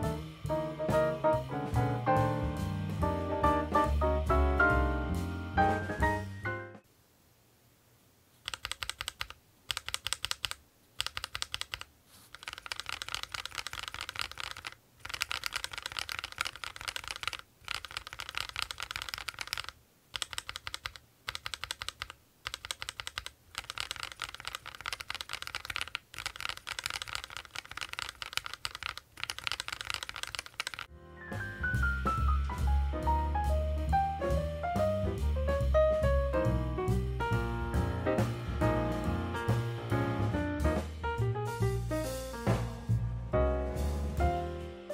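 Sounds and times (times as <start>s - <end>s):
mechanical keyboard typing: 8.4s - 30.9s.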